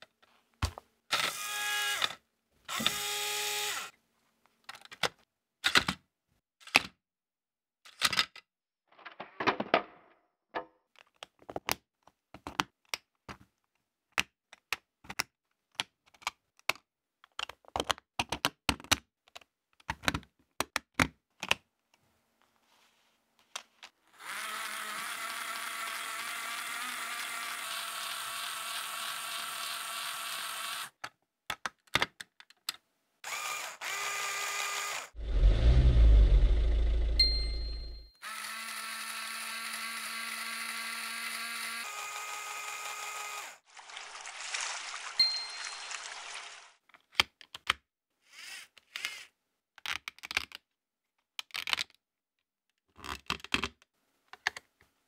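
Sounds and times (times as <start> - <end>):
small electric motor and gearbox: 1.1 - 4.0, 24.1 - 31.0, 33.2 - 43.7
plastic pieces clicking together: 31.0 - 32.8, 49.8 - 52.0.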